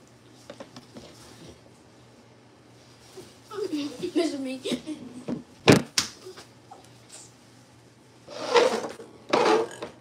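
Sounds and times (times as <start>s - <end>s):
plastic cups scraping: 8.3s - 10.0s.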